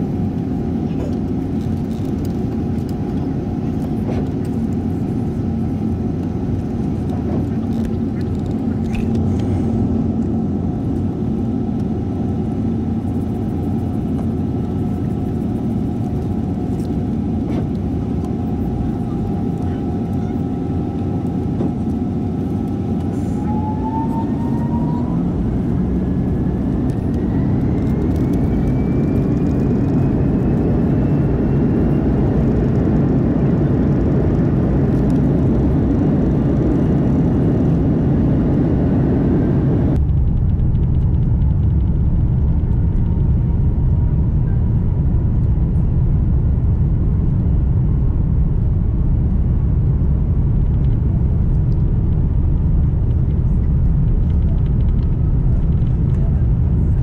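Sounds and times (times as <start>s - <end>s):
jet engine rumble: 0.0s - 57.0s
jet engine whine: 0.0s - 57.0s.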